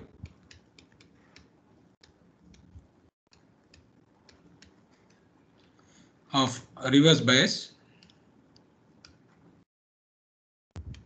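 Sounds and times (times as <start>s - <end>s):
stylus tapping on tablet: 0.0s - 5.2s.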